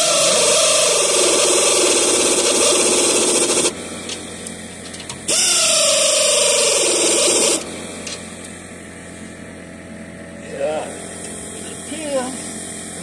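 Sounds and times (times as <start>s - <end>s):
power drill spinning: 0.0s - 4.2s, 5.2s - 7.8s.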